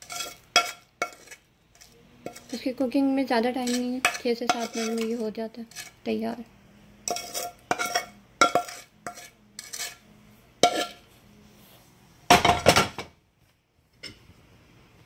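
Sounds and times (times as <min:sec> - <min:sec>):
metal spoon scraping a pan: 0:00.0 - 0:06.1, 0:07.0 - 0:11.1.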